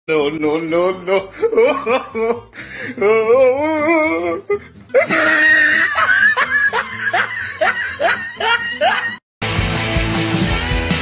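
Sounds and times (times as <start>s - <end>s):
person laughing hard: 1.1s - 9.2s.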